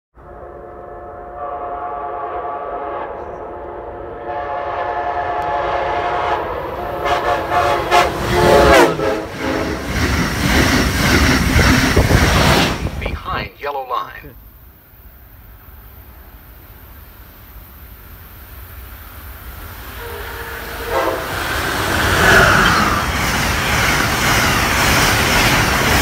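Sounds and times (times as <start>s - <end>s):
train air horn: 0.2s - 10.0s, 19.9s - 23.0s
train passing with rush and clatter: 0.2s - 26.0s.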